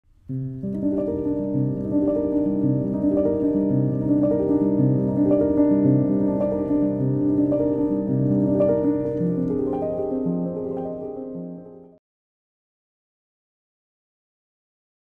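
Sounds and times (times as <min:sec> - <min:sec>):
piano-led theme music: 0:00.2 - 0:12.0.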